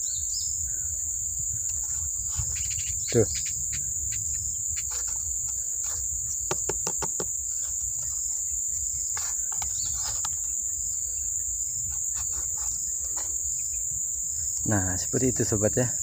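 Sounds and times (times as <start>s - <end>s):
high-pitched insect drone: 0.0s - 16.0s
hand knocking on tree bark: 6.4s - 7.4s.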